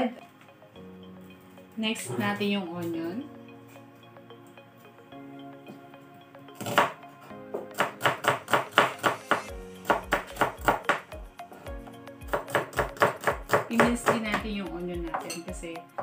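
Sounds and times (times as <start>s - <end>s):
background music: 0.0s - 16.0s
knife chopping on plastic board: 12.3s - 14.4s.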